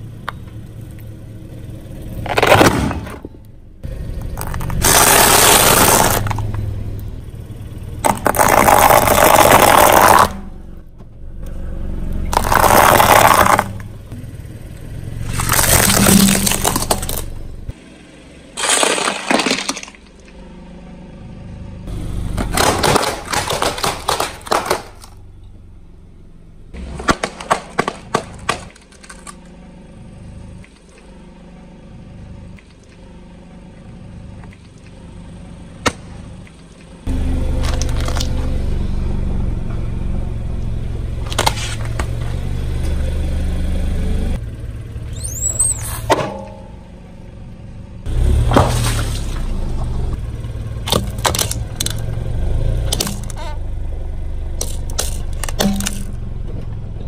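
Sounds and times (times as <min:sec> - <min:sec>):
tyre crushing objects on concrete: 0:04.4 - 0:06.4, 0:08.0 - 0:10.4, 0:12.3 - 0:13.8, 0:18.6 - 0:20.2, 0:22.4 - 0:25.2, 0:26.8 - 0:29.4.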